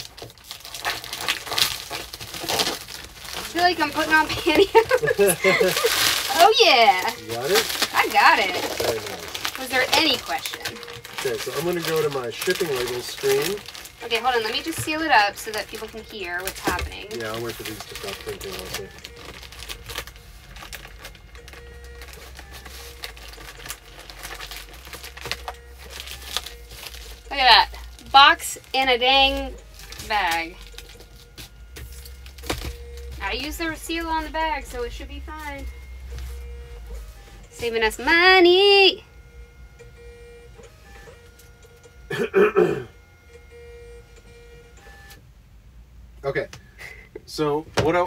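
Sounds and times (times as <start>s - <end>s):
plastic bag crinkling: 0.0s - 37.0s
faint steady hum: 0.0s - 48.0s
label printer feeding labels: 3.4s - 27.3s
person wordless vocal sound: 42.2s - 42.9s.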